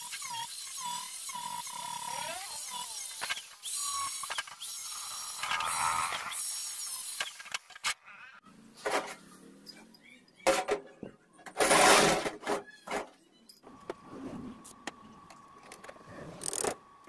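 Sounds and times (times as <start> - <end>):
angle grinder grinding steel: 0.0 - 7.8.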